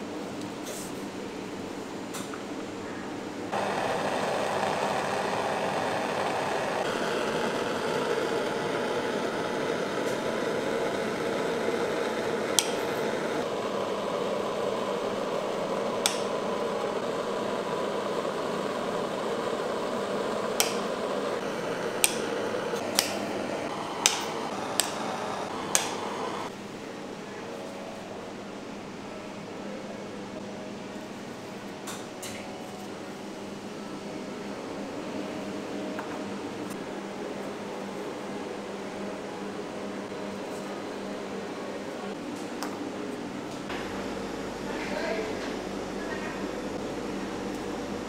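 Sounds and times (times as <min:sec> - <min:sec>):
steady rushing hiss: 0:19.4 - 0:26.5.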